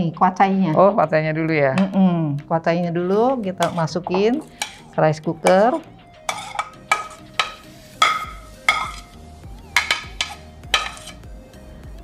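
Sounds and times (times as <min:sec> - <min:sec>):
utensil clinking against pot: 0:03.1 - 0:11.3.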